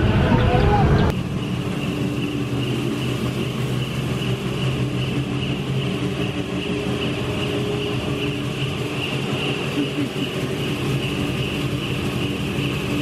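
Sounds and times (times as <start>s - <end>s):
ferry engines droning: 0.0s - 13.0s
pulsing high whine: 0.0s - 13.0s.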